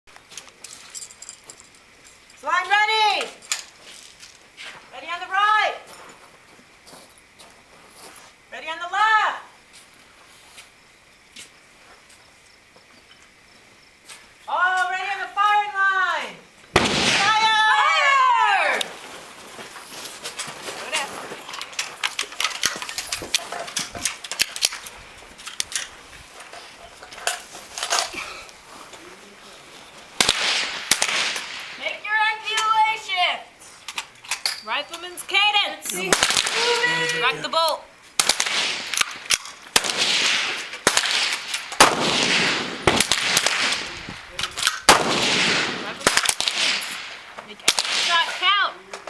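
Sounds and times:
rifle shots: 16.7s - 17.6s, 30.2s - 31.8s, 36.1s - 36.7s, 38.2s - 44.0s, 44.6s - 48.4s.

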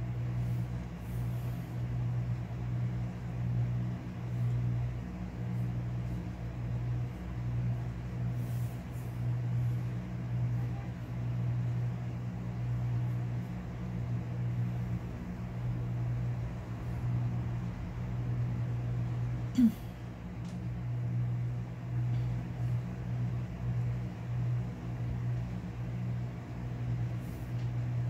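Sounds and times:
low mechanical hum: 0.0s - 28.0s.

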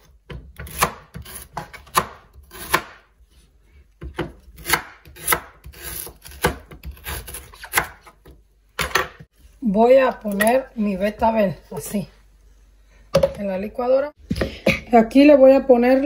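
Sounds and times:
knife chopping on wooden board: 0.3s - 3.0s, 4.0s - 8.1s.

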